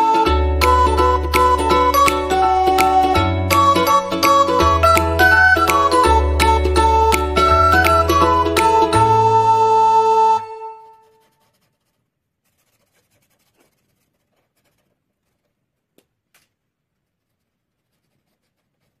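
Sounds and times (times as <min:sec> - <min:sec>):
music track: 0:00.0 - 0:11.1
marker scratching on paper: 0:11.0 - 0:15.5, 0:17.0 - 0:19.0.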